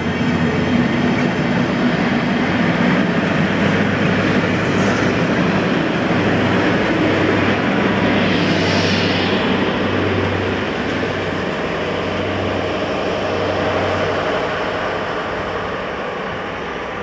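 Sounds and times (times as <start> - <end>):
locomotive engine drone: 0.0 - 17.0.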